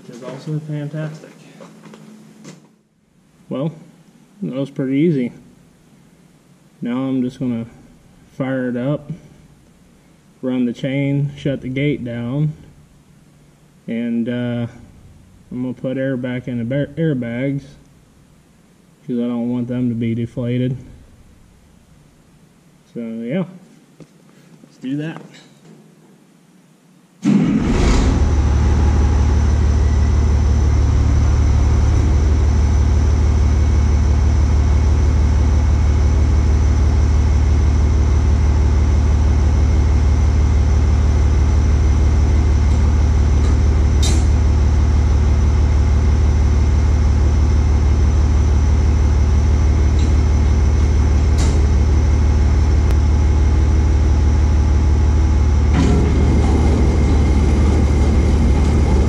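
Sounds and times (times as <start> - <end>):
tractor engine running: 27.7 - 59.0
baler chain running: 55.7 - 59.0.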